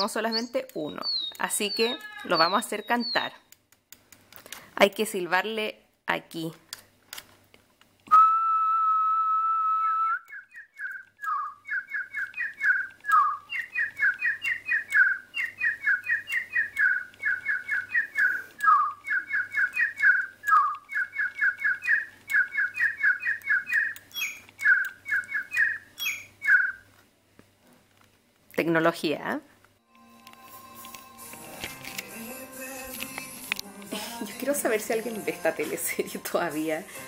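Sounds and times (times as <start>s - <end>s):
electronic toy bird chirping: 0.0s - 3.4s, 10.5s - 26.8s
whistled note: 8.1s - 22.0s.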